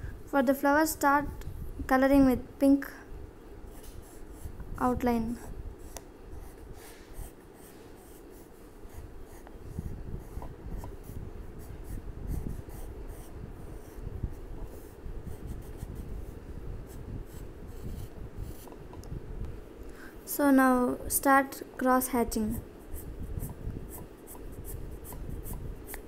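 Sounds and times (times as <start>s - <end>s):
pencil scratching on paper: 5.4s - 18.8s, 22.5s - 26.0s.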